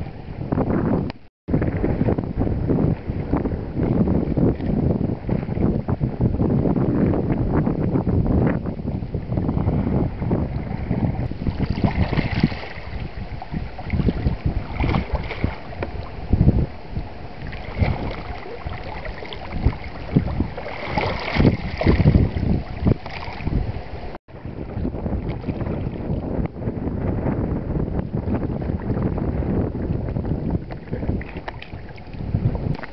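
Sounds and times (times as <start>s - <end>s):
wind buffeting microphone: 0.0s - 32.9s
waves lapping against rocks: 7.0s - 32.9s.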